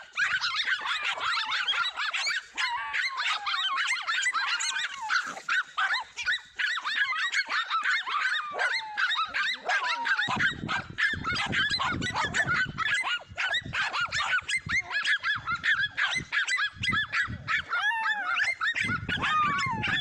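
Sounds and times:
dog whining: 0:00.0 - 0:20.0
dogs barking and yapping: 0:00.0 - 0:20.0.

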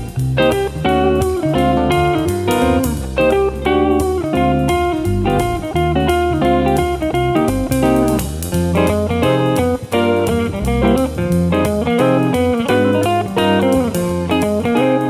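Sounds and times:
guitar-led instrumental music: 0:00.0 - 0:15.0.

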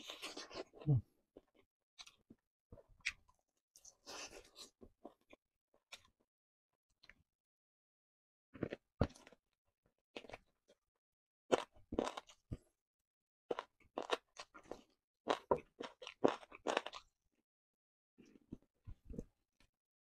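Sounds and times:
person crunching and chewing: 0:11.5 - 0:12.5, 0:13.5 - 0:17.1.

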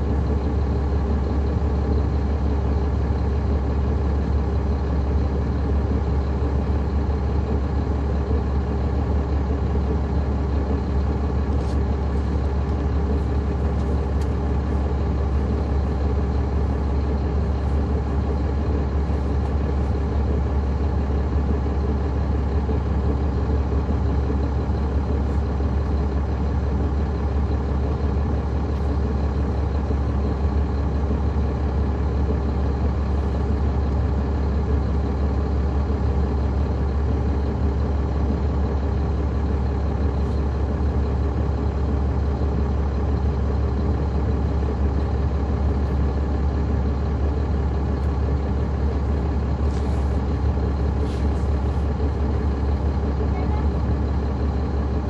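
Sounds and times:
bus diesel engine humming: 0:00.0 - 0:55.0.

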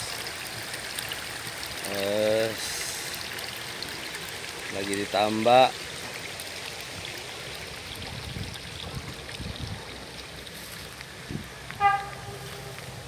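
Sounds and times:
horn-like toot: 0:11.8 - 0:12.8.

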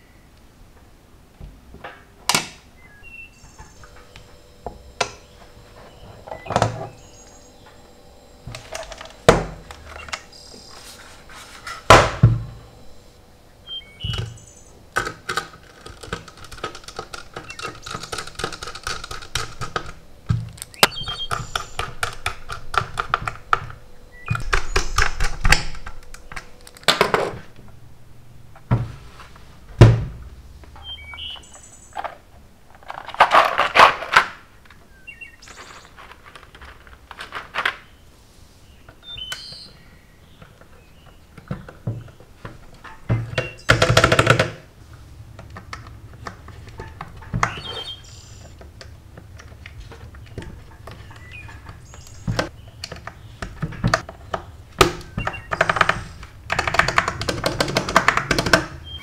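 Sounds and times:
keycaps pressed onto switches: 0:14.9 - 0:27.0
plastic box clattering: 0:15.0 - 0:27.4, 0:32.0 - 0:34.4, 0:49.4 - 0:58.8.

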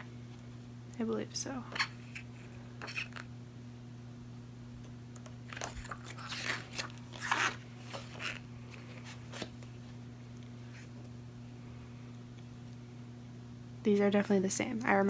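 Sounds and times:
magazine pages rustling: 0:05.5 - 0:09.9.

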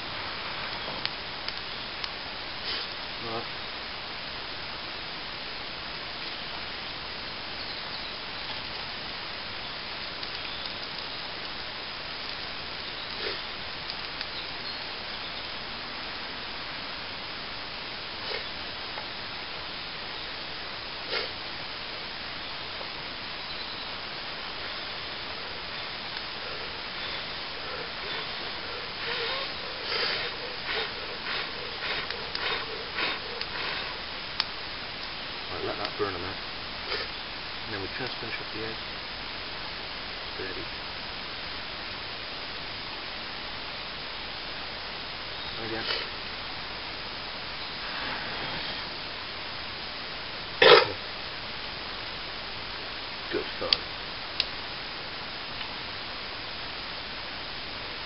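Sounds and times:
small crackles: 0:00.0 - 0:03.5, 0:05.9 - 0:50.2, 0:50.9 - 0:58.0
puffs of breath blowing: 0:26.4 - 0:34.0.

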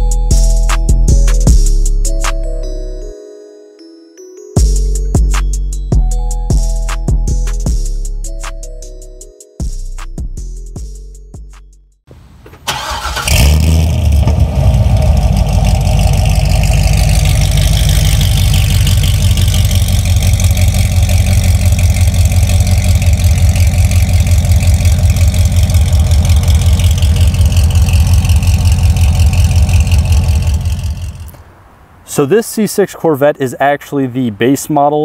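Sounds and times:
engine starting and idling: 0:12.4 - 0:31.4
car engine cranking: 0:12.4 - 0:31.5.

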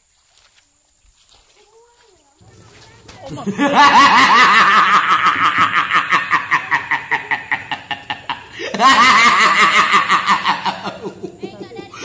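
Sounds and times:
loud rhythmic laughter: 0:03.2 - 0:12.0.

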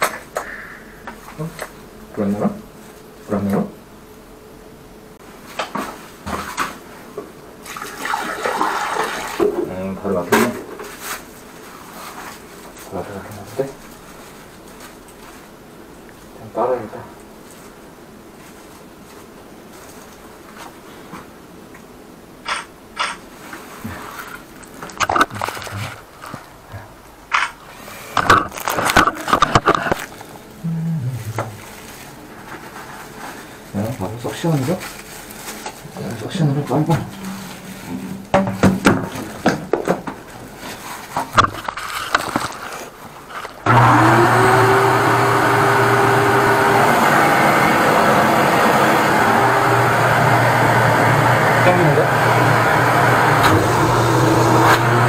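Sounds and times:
water pouring into drain: 0:07.7 - 0:09.4
handling sounds: 0:22.5 - 0:27.6, 0:28.2 - 0:30.4, 0:37.1 - 0:43.7
suction hose crackling and knocking: 0:24.2 - 0:26.5, 0:28.2 - 0:30.3, 0:41.0 - 0:43.8.

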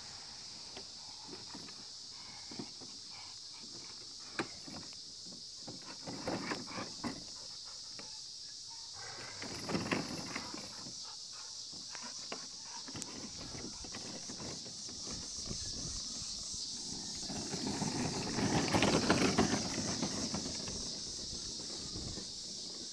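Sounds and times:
plastic wagon knocking and rattling: 0:03.7 - 0:07.3, 0:09.4 - 0:10.9, 0:12.2 - 0:16.0, 0:16.9 - 0:22.9.

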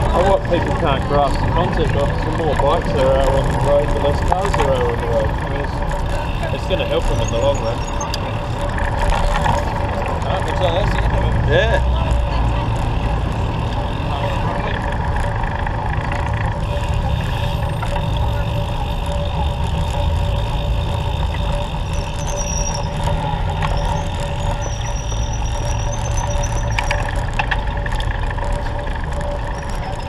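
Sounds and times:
traffic engine rumble: 0:00.0 - 0:30.0.

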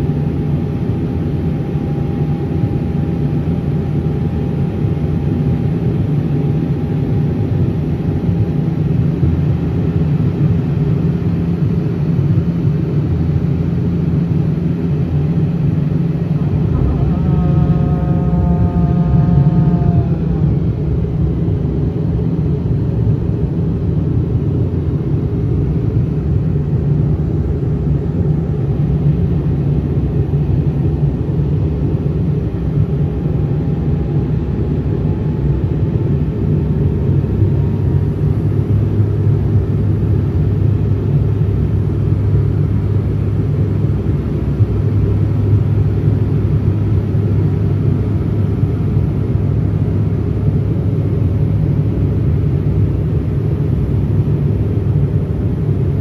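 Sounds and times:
airliner engines droning: 0:00.0 - 0:56.0
faint rising whine: 0:00.0 - 0:56.0
airflow noise: 0:13.0 - 0:45.7.

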